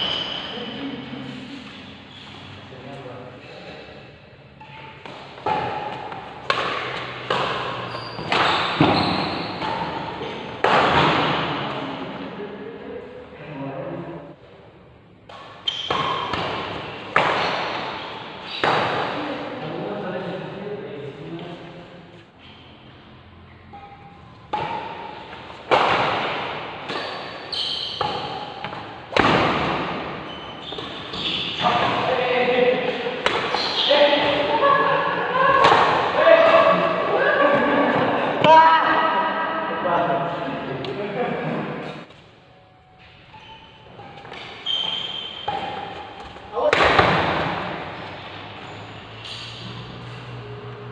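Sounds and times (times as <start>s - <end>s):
shoes squeaking on court: 0.0s - 0.8s, 4.6s - 10.6s, 15.3s - 18.8s, 26.9s - 29.1s, 30.0s - 32.2s, 33.3s - 34.4s, 42.9s - 46.6s, 47.8s - 50.4s
rackets hitting shuttlecock: 5.0s - 11.7s, 15.2s - 19.2s, 24.5s - 34.6s, 35.6s - 36.9s, 44.1s - 48.6s.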